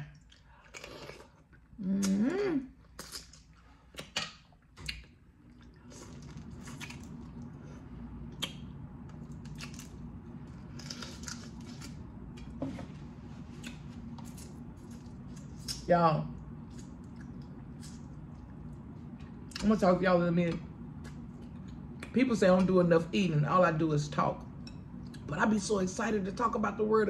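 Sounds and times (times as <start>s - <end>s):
low steady hum: 0.0s - 27.0s
person humming: 1.8s - 2.7s.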